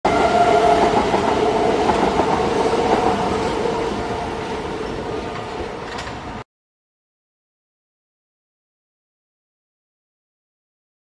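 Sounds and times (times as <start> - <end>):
train passing: 0.1 - 6.4.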